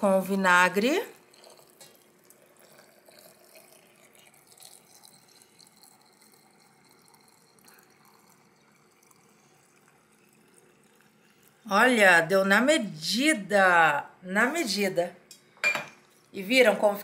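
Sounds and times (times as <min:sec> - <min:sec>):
liquid pouring into a glass jar: 0:00.5 - 0:11.7
drips and splashes: 0:01.1 - 0:11.7.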